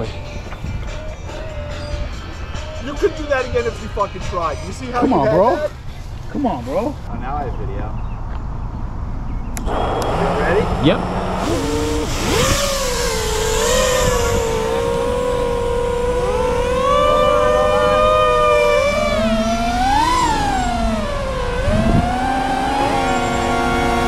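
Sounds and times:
quadcopter motors whining: 0:09.6 - 0:24.0.

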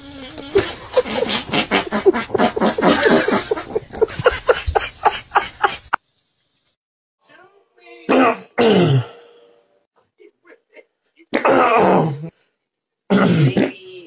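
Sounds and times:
person laughing hard: 0:00.5 - 0:06.0.

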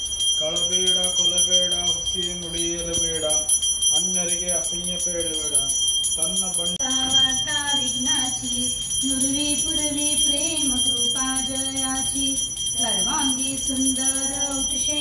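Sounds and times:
hand bell ringing rapidly: 0:00.0 - 0:15.0
voices singing a hymn: 0:06.7 - 0:15.0.

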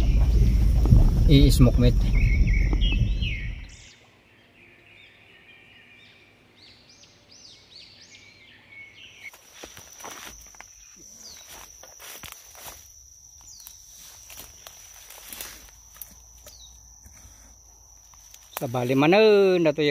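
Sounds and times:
vehicle rumble on dirt track: 0:00.0 - 0:03.7
bird chirping: 0:00.0 - 0:09.9, 0:10.6 - 0:12.1, 0:13.4 - 0:19.9
footsteps in dry undergrowth: 0:09.2 - 0:19.7.

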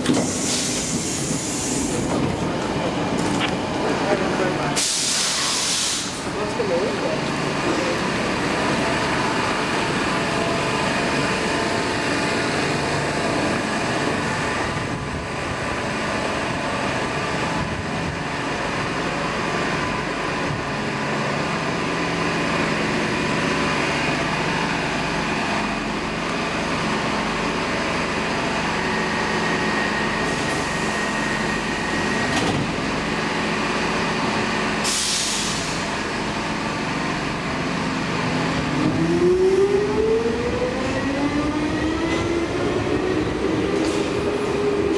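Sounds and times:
compressed air hissing: 0:00.2 - 0:02.1, 0:04.8 - 0:06.2, 0:34.8 - 0:35.9.

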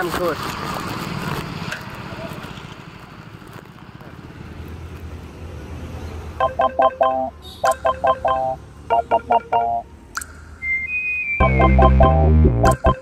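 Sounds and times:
low street ambience: 0:00.0 - 0:13.0
loud bass-heavy beat: 0:11.4 - 0:13.0
quick pitched note phrase: 0:11.4 - 0:13.0.

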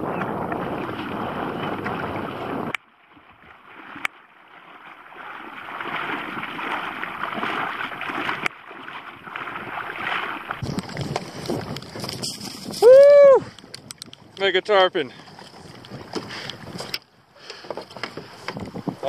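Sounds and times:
wind on microphone: 0:00.0 - 0:02.8, 0:09.6 - 0:17.0, 0:18.0 - 0:19.0
water washing in shallows: 0:00.0 - 0:14.4.

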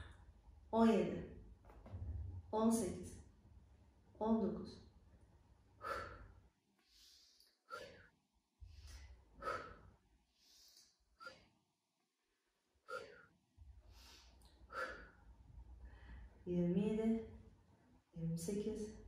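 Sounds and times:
woman breathing during exercise: 0:05.7 - 0:11.8, 0:12.4 - 0:16.4.

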